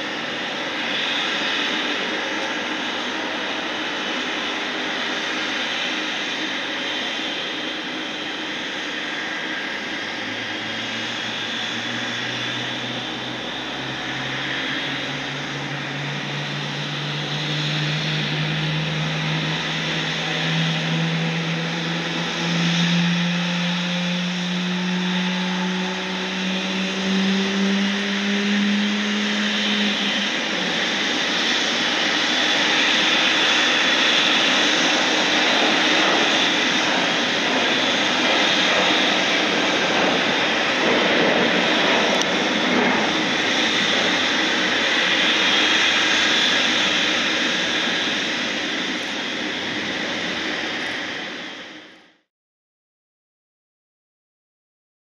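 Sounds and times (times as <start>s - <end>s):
jet engine whine and hiss: 0.0s - 52.3s
low hum rising in pitch: 12.2s - 30.9s.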